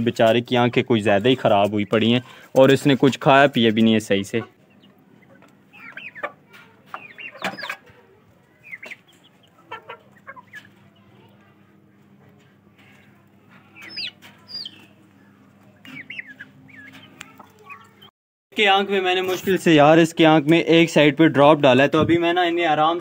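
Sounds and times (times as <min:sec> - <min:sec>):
chickens clucking and squawking: 0:00.0 - 0:18.1.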